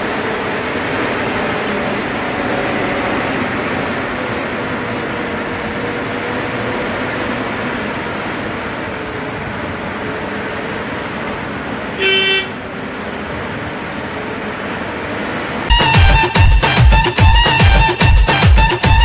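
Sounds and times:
bus engine and road noise: 0:00.0 - 0:19.0
short horn toot: 0:12.0 - 0:12.6.

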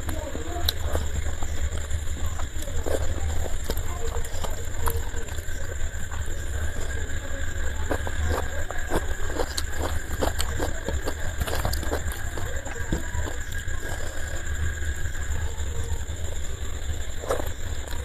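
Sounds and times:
soft chewing: 0:00.0 - 0:18.0.

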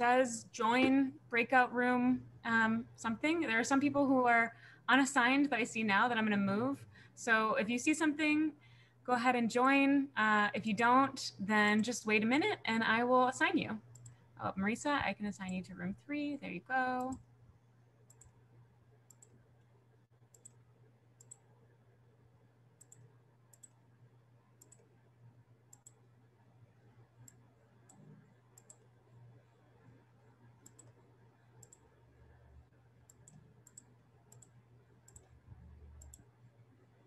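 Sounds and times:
steady low hum: 0:00.0 - 0:37.0
computer mouse clicks: 0:13.9 - 0:14.2, 0:17.1 - 0:17.3, 0:18.0 - 0:18.4, 0:19.0 - 0:20.6, 0:21.2 - 0:21.6, 0:22.8 - 0:23.9, 0:24.6 - 0:25.0, 0:25.7 - 0:26.1, 0:27.2 - 0:29.2, 0:29.8 - 0:32.0, 0:33.0 - 0:36.6.

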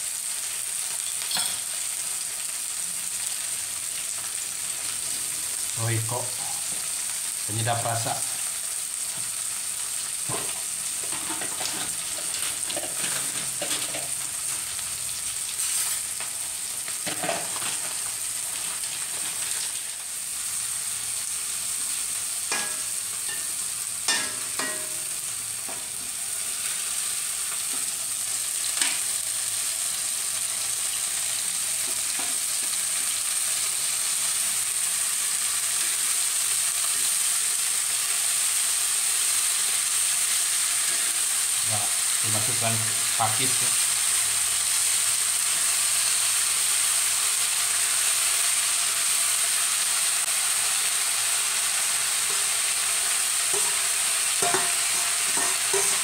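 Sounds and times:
food sizzling in hot oil: 0:00.0 - 0:56.0
metal spatula scraping wok: 0:10.5 - 0:14.0, 0:15.6 - 0:16.1, 0:52.2 - 0:56.0.

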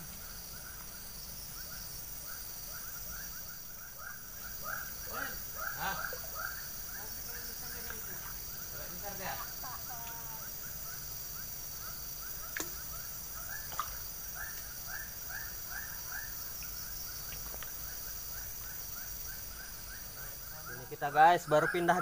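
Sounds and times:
insect drone: 0:00.0 - 0:22.0
animal chirping: 0:20.6 - 0:22.0.

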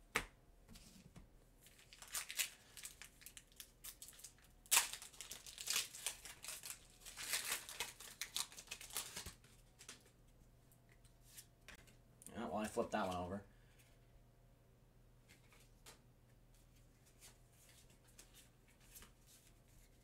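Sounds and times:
plastic packaging crinkling: 0:01.7 - 0:10.1.

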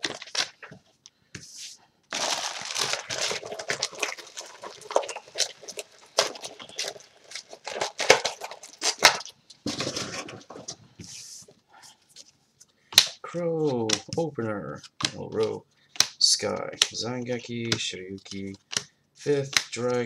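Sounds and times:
plastic packaging crinkling and tearing: 0:00.0 - 0:00.8, 0:02.1 - 0:10.7.

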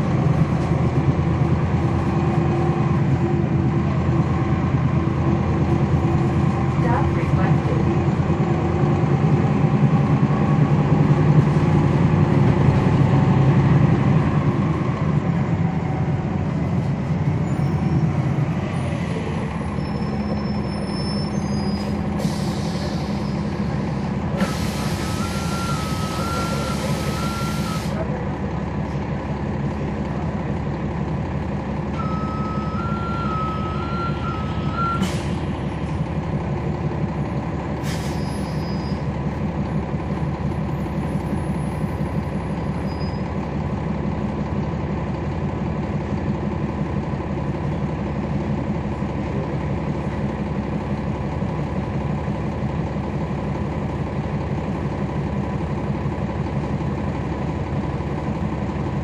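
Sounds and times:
bus diesel engine running: 0:00.0 - 0:59.0
two-tone electronic beeper: 0:32.0 - 0:35.0.

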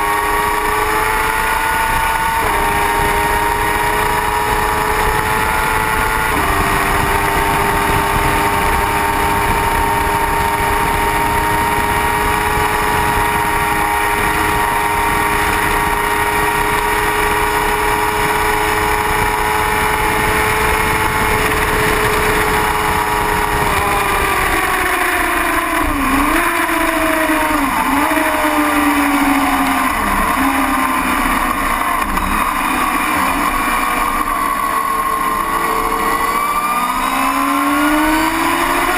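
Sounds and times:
motorcycle engine at high revs: 0:00.0 - 0:38.9
wind rush: 0:01.4 - 0:30.9.

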